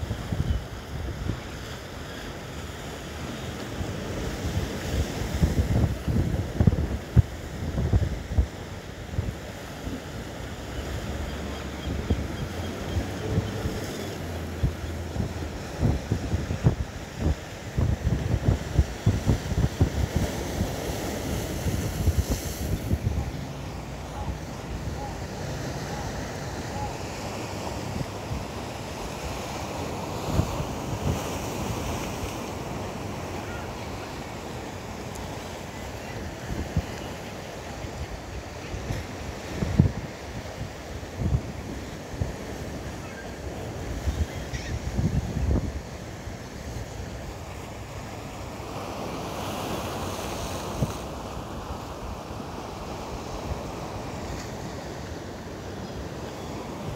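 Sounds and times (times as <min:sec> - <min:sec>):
surf washing against rocks: 0:00.0 - 0:56.9
wind buffeting microphone: 0:04.4 - 0:08.6, 0:11.9 - 0:26.9, 0:38.8 - 0:42.5, 0:43.8 - 0:45.9.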